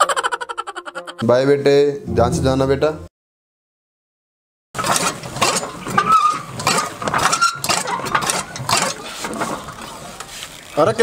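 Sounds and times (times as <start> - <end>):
short metallic squeaks: 4.8 - 9.0
chaff cutter clanking and chopping: 4.8 - 9.4.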